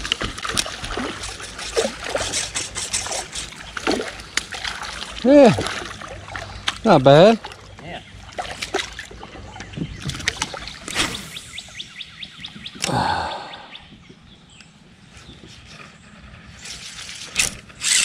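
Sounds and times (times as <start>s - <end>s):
faint bird calls: 9.1s - 16.5s.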